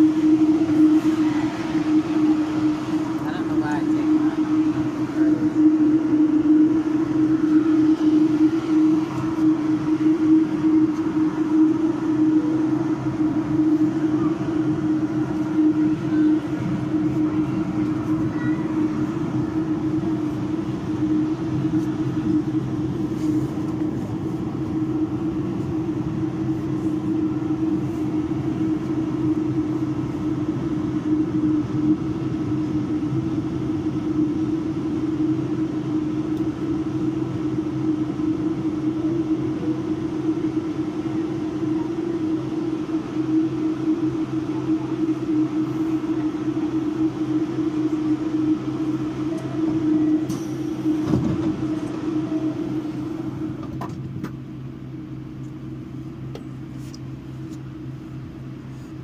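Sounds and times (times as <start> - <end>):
constant tone: 0.0 - 59.0
subway car drone: 0.0 - 59.0.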